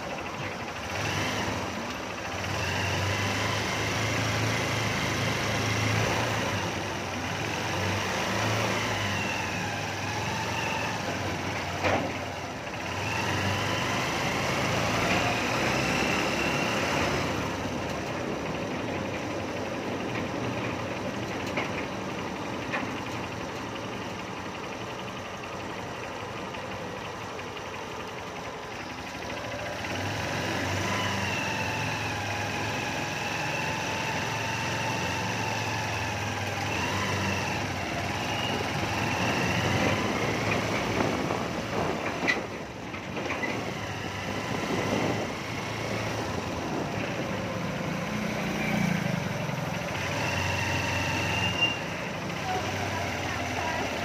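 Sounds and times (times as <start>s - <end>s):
motorcycle engine running: 0.0s - 54.0s
motorcycle passing: 43.5s - 54.0s.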